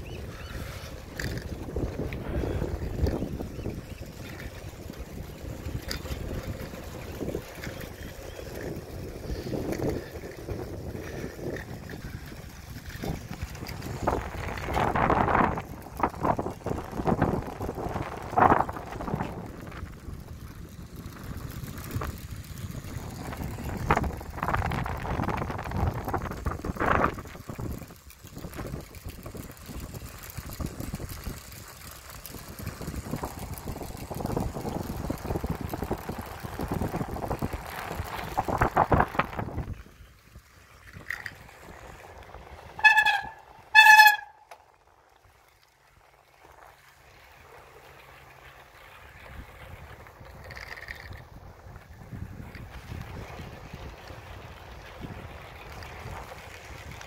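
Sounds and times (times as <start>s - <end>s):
wind buffeting microphone: 0.0s - 45.0s, 49.0s - 57.0s
bicycle rattling: 0.0s - 57.0s
loud pitched honks: 42.7s - 44.5s.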